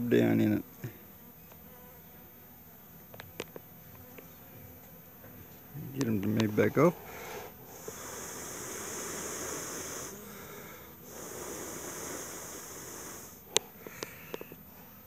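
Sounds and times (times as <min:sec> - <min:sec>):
breath blown onto bees: 0:06.8 - 0:15.0.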